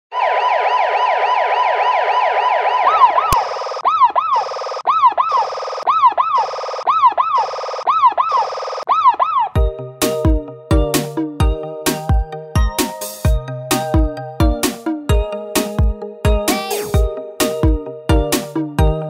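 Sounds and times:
electronic police siren: 0.1 - 9.6.

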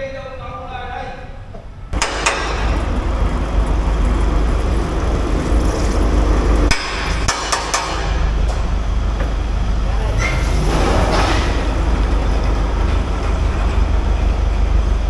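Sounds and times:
vehicle engine low rumble: 1.4 - 15.0
sharp knocks and clanks: 1.5 - 9.4.

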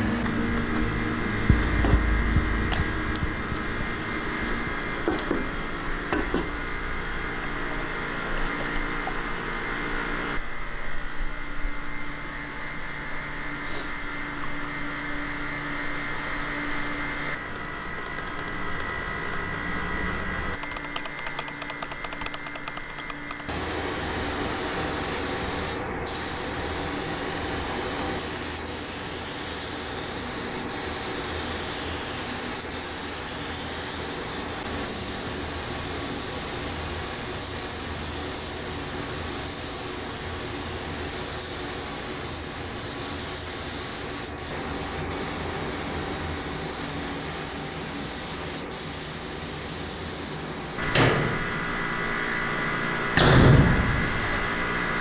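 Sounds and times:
steady hum: 0.0 - 49.7
paint spray gun hissing: 20.6 - 50.8.

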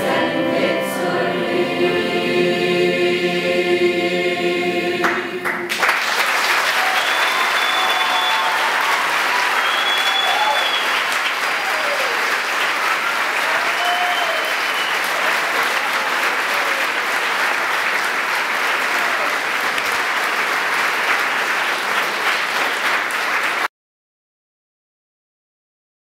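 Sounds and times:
audience applauding: 5.0 - 23.7.

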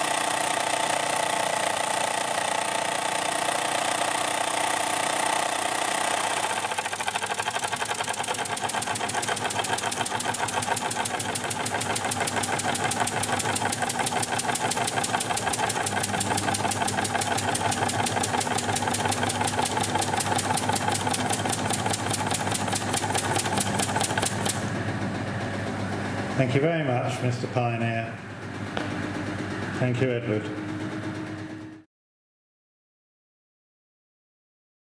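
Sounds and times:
washing machine running: 0.0 - 31.9
steam engine ticking and puffing: 6.4 - 24.7.

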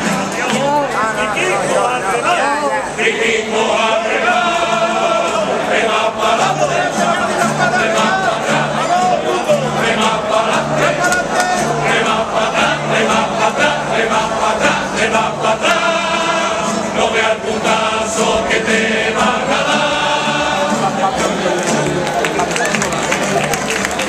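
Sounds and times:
chorus of voices singing: 0.0 - 22.0.

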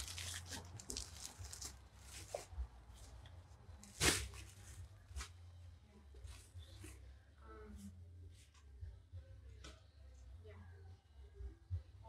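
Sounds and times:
packaging rustling and crinkling: 0.0 - 2.5.

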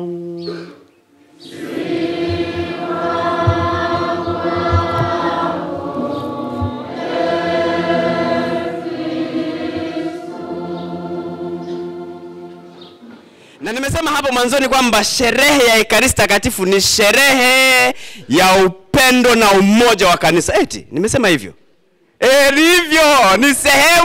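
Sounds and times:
choir singing: 1.3 - 13.4
low thuds: 2.0 - 7.0.

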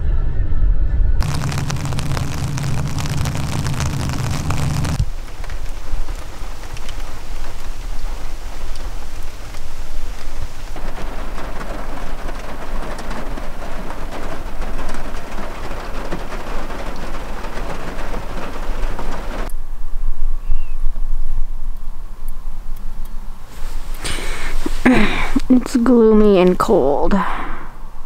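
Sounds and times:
low rumble: 0.0 - 19.5
rain on van roof: 1.2 - 19.5, 23.5 - 26.4.

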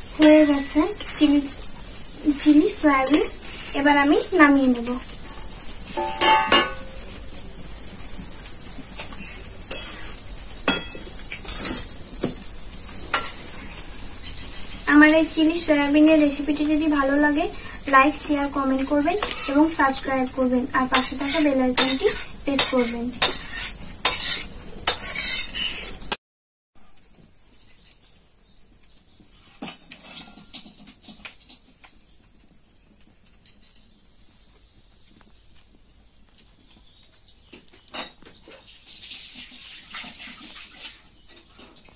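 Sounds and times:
insects chirping: 0.0 - 26.2, 26.8 - 41.9
metal spatula scraping wok: 6.0 - 7.0, 9.7 - 10.1, 19.2 - 20.1, 20.8 - 26.0.

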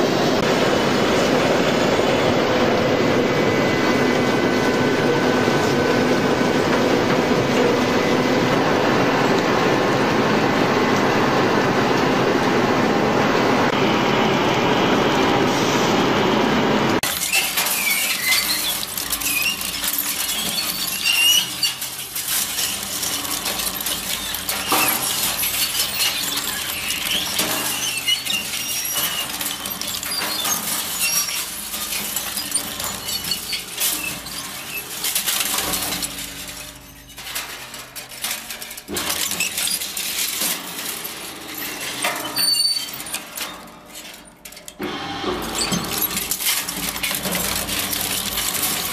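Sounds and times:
crusher machine crunching: 16.9 - 48.9
short high squeaks: 17.0 - 37.2, 39.1 - 44.2.

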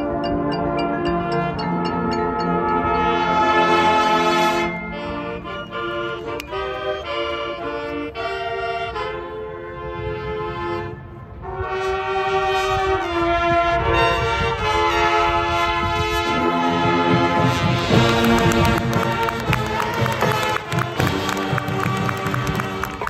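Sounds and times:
percussion hits: 0.0 - 3.9, 17.1 - 23.0
marching band brass chords: 0.0 - 23.0.

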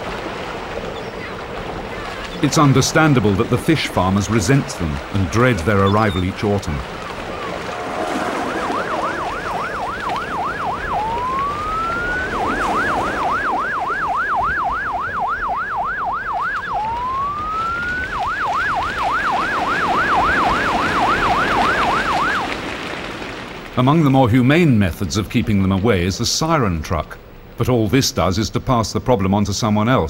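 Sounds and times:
rising siren wail: 7.0 - 22.7
warbling siren: 7.1 - 22.7.

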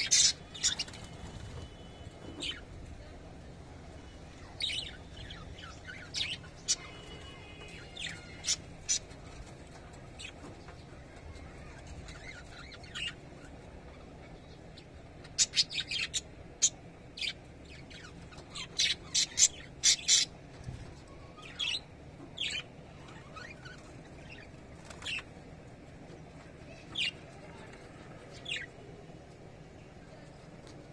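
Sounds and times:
budgerigars chirping: 0.0 - 1.0.

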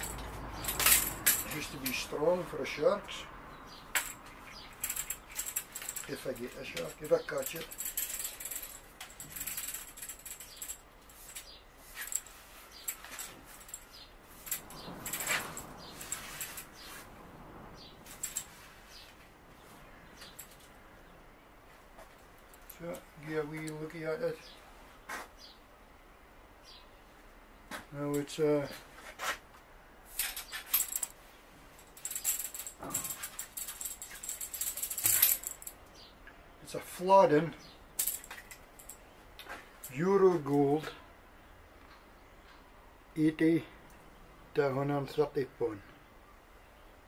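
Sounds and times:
light rustles: 3.9 - 20.8, 27.7 - 36.1.

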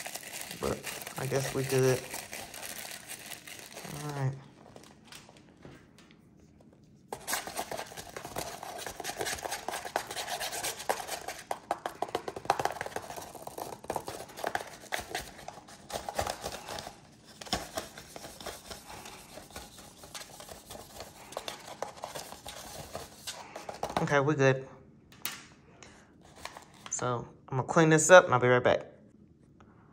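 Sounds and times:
paper funnel scraping plastic balloon: 0.0 - 4.4, 7.1 - 24.1
foam beads crackling: 0.0 - 4.5.

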